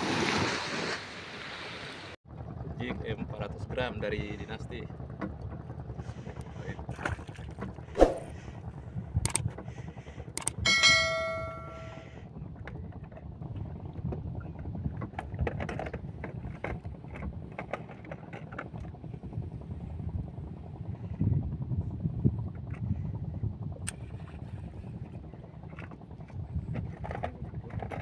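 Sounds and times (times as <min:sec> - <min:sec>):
boat low rumble: 0:00.0 - 0:28.0
bright bell chime: 0:10.7 - 0:12.0.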